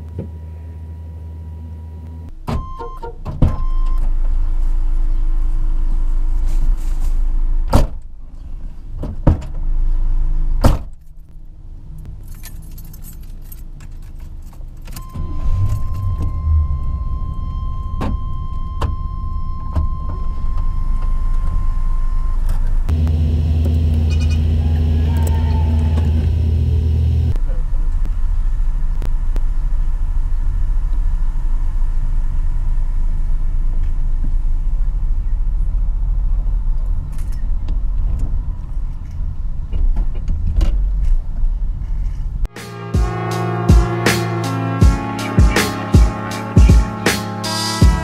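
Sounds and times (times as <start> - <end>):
car door thudding: 7.7 - 8.0
keys jangling: 12.1 - 15.1
warning tone: 15.0 - 23.0, 42.5 - 48.0
car engine running: 21.0 - 38.5.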